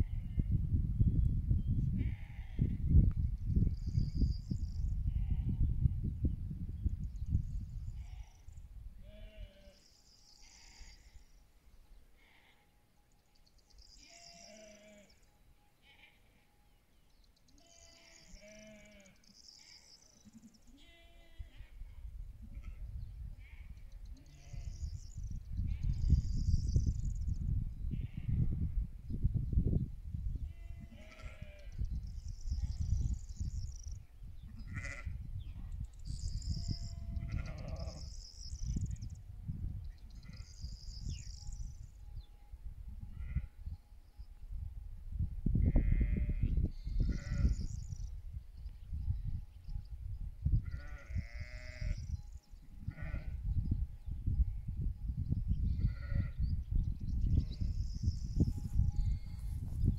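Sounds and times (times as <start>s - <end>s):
sheep bleating: 20.8s - 21.7s, 30.5s - 31.7s, 34.5s - 35.2s, 37.1s - 38.1s, 45.8s - 47.6s, 50.6s - 52.0s, 52.9s - 53.4s, 55.8s - 56.4s.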